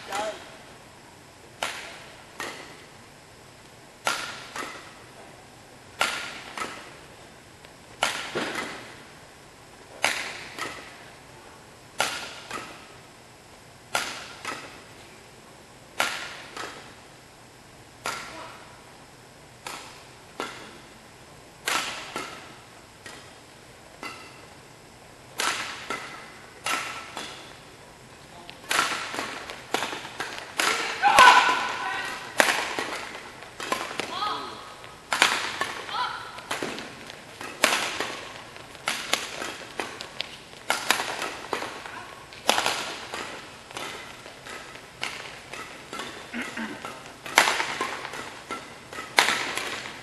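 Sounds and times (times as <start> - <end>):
rackets striking shuttlecock: 1.6 - 2.9, 4.0 - 5.3, 5.9 - 7.1, 7.9 - 9.1, 9.9 - 11.1, 12.0 - 13.0, 13.9 - 15.1, 16.0 - 17.0, 18.0 - 18.6, 19.6 - 21.0, 21.6 - 24.6, 25.3 - 27.7, 28.5 - 50.0.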